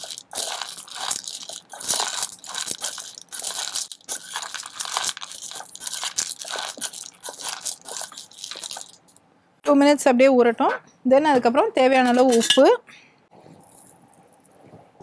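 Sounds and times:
metal spoon stirring nuts: 0.0s - 9.1s
nuts crunching and scraping bowl: 0.0s - 9.1s.

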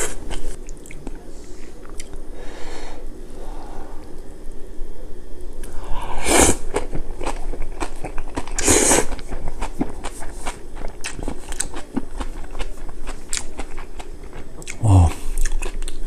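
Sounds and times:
wet crunchy chewing: 6.6s - 16.0s
slurping noodles: 8.4s - 9.2s.

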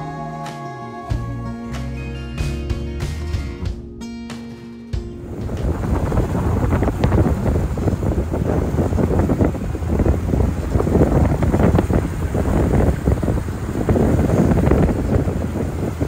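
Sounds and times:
boat rushing across sea: 5.2s - 16.0s
wind buffeting microphone: 5.2s - 16.0s.

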